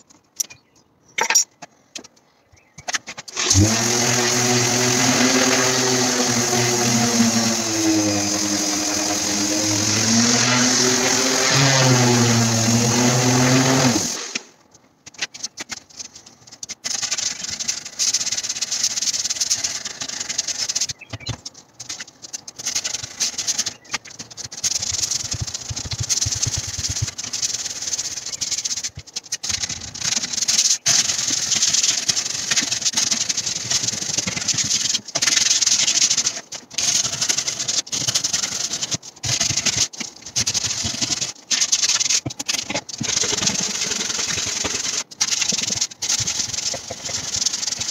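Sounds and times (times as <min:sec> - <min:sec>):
sandpaper rubbing on wood: 0:03.3 - 0:14.5, 0:16.8 - 0:21.0, 0:21.8 - 0:47.9
sander motor winding down: 0:03.4 - 0:14.5.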